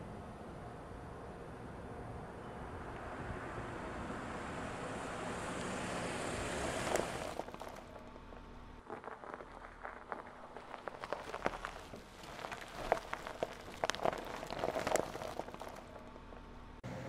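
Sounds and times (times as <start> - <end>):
suv driving by: 1.5 - 8.8
tyres crunching on icy slush: 4.8 - 8.0, 8.8 - 16.3.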